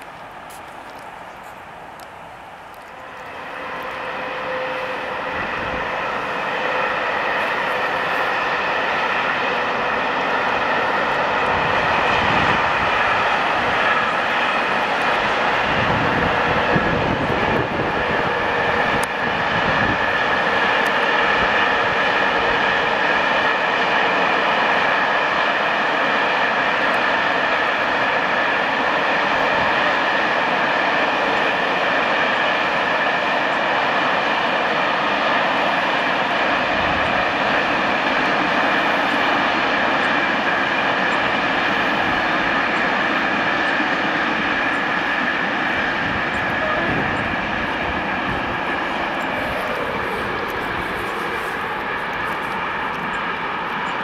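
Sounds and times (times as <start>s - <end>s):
high whine: 0.0s - 24.8s, 36.7s - 54.0s
freight train rolling past: 0.0s - 54.0s.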